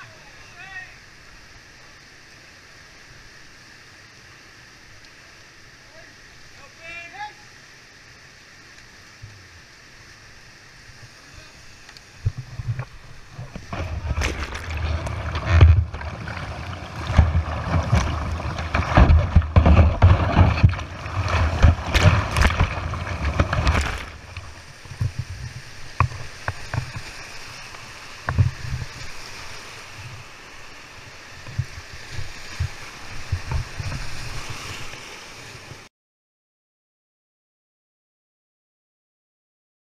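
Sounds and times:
wind rumbling on microphone: 12.1 - 35.9
white-water rapids rushing: 12.9 - 31.4.

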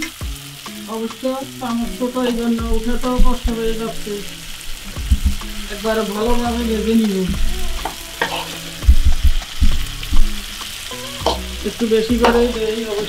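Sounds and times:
meat sizzling in oil: 0.0 - 13.0
wavering low tone: 6.3 - 10.2
spoon knocking on pan: 7.3 - 12.6
spoon stirring and scraping: 7.8 - 8.8.

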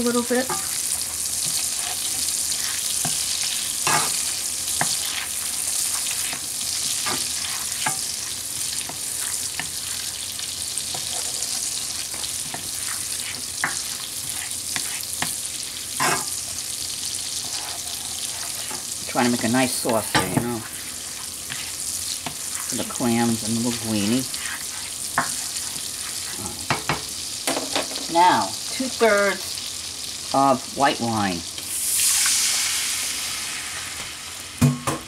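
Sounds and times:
spatula scraping pan: 0.0 - 27.1
garlic sizzling in oil: 0.0 - 34.8.

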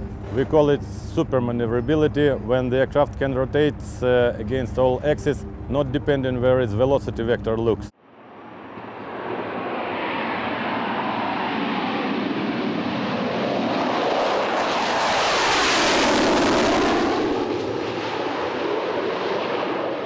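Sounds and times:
jet fighter flying past: 8.0 - 20.0.

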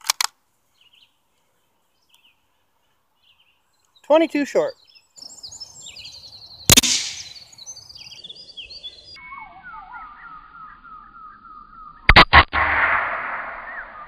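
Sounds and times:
birds singing: 0.7 - 12.1, 13.4 - 14.0
rifle shot: 6.7 - 7.4, 12.1 - 14.0.

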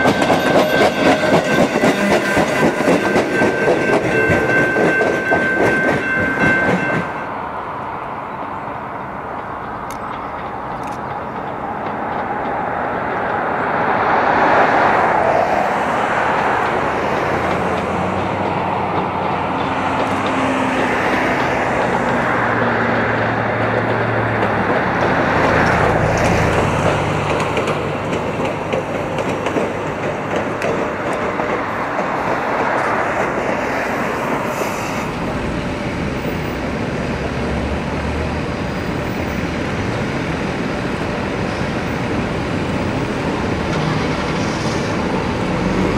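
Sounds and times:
streetcar wheels rumbling on rails: 0.0 - 45.9.

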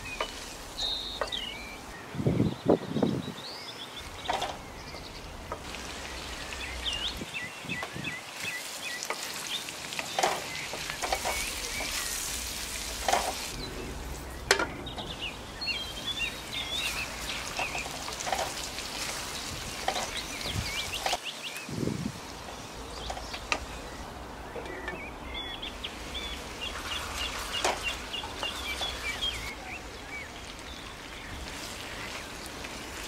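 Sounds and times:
vegetables sizzling in oil: 0.0 - 2.0, 4.0 - 24.0, 25.3 - 33.0
wooden spatula scraping a pan: 9.0 - 15.2, 26.7 - 29.5.

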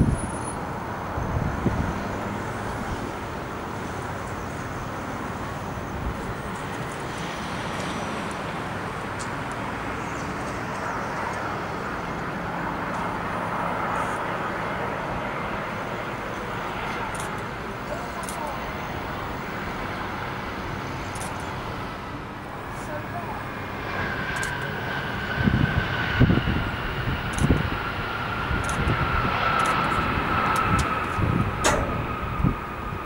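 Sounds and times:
wind buffeting microphone: 0.0 - 5.0, 23.4 - 33.0
jet engines on approach: 0.0 - 33.0.

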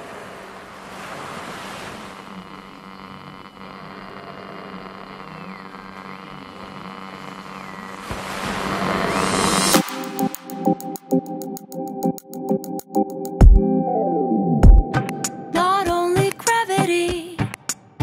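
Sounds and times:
ocean surf washing: 0.0 - 3.0, 8.0 - 11.1.

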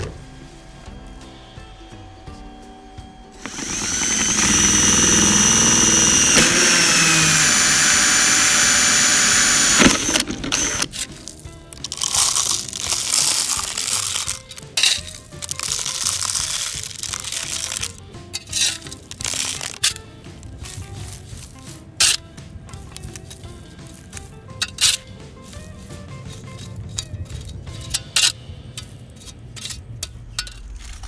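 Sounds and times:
power drill whining: 3.4 - 11.2
rustling and scraping: 3.4 - 31.0.

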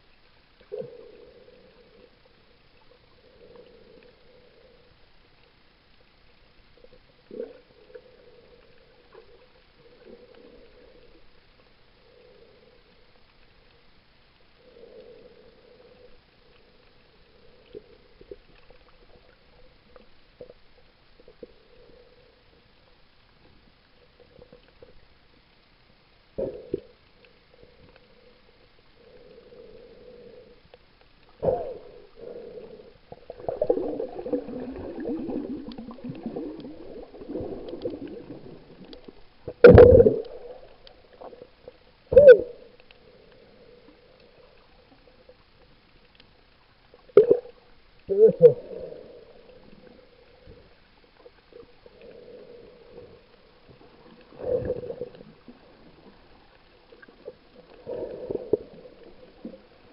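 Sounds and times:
rough wavering noise: 31.4 - 41.4.

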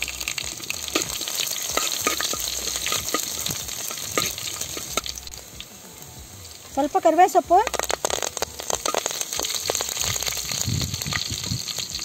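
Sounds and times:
sharp crackling pops: 0.0 - 5.8, 6.4 - 12.0
spices sizzling in hot oil: 0.0 - 12.0.

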